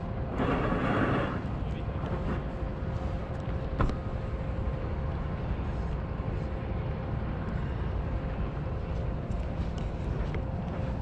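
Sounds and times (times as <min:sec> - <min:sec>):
faint steady hum: 0:00.0 - 0:11.0
low outdoor rumble: 0:00.0 - 0:11.0.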